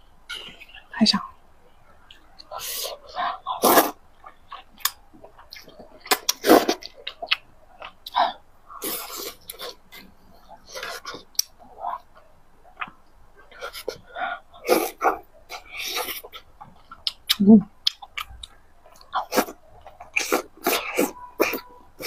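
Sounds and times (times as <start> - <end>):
noodles slurped: 2.5 - 4.0.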